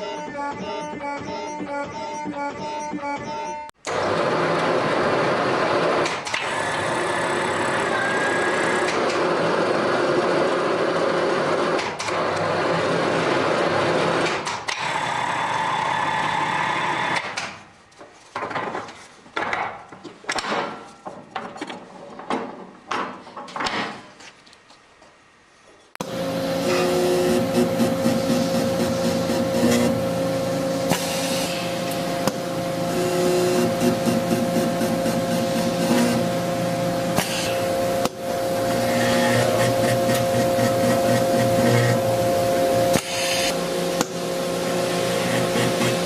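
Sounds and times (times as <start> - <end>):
iron twisting machine running: 26.0 - 46.0.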